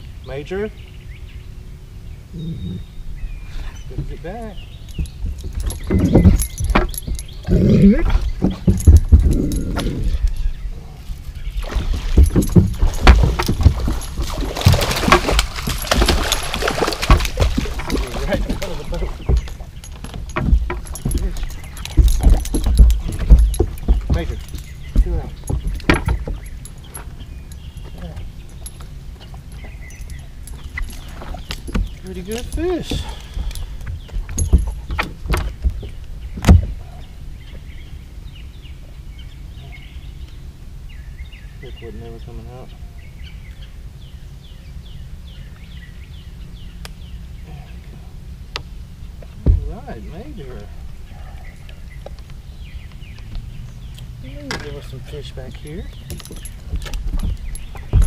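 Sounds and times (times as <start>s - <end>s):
faint birds chirping: 0.0s - 58.0s
low steady rumble: 0.0s - 58.0s
dog paws scrabbling on deck: 4.9s - 10.5s, 11.1s - 37.6s, 52.0s - 58.0s
fish splashing: 11.6s - 20.1s.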